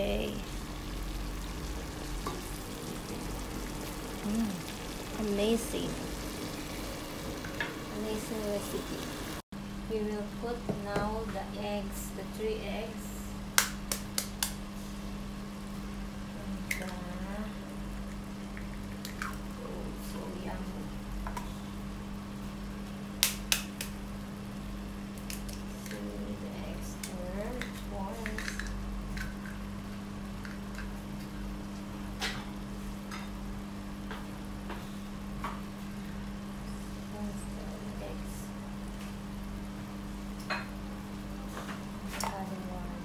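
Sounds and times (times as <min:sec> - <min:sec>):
steady low hum: 0:00.0 - 0:43.0
sauce simmering and sizzling: 0:00.2 - 0:09.4.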